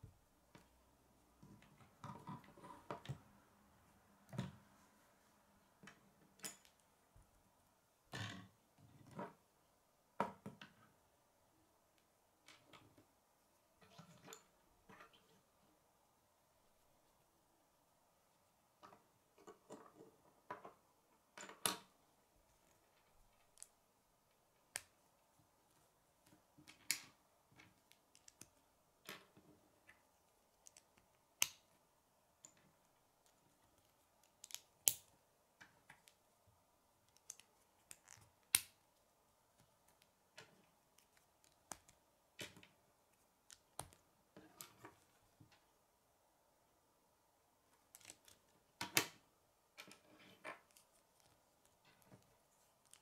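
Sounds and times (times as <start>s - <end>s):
soft handling of plastic pieces: 18.3s - 45.9s, 47.5s - 53.0s.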